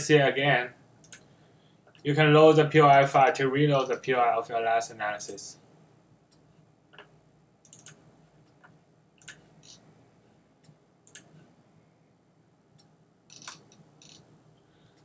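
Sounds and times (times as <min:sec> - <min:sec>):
computer mouse clicks: 0:01.0 - 0:01.3, 0:06.3 - 0:08.0, 0:08.6 - 0:09.8, 0:11.0 - 0:11.4, 0:12.8 - 0:14.3.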